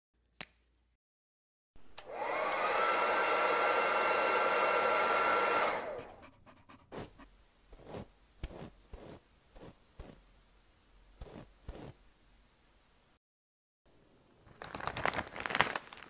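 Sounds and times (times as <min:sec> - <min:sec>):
hair dryer blowing: 0:01.9 - 0:06.2.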